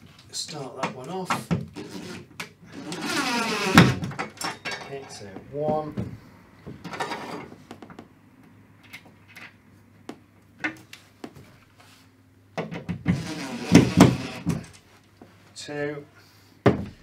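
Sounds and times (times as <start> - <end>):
power drill running: 2.8 - 4.0, 13.2 - 14.5.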